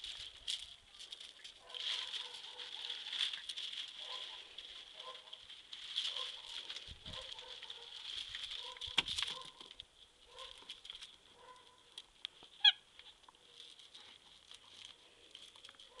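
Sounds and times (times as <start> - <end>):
squeaky toy squeak: 12.6 - 12.8.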